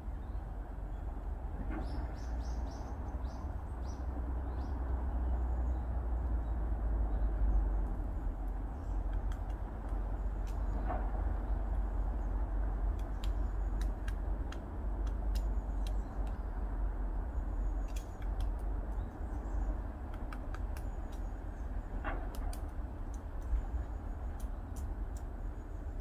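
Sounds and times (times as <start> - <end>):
road traffic rumble: 0.0 - 26.0
woodpecker pecking tree: 7.8 - 16.7, 17.7 - 25.4.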